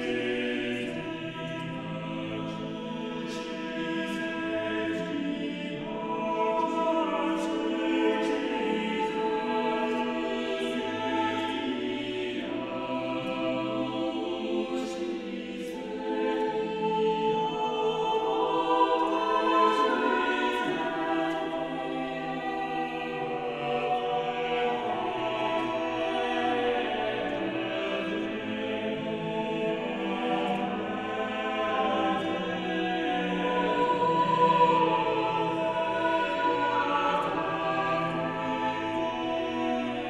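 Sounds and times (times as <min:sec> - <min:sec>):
choir singing long chords: 0:00.0 - 0:40.0.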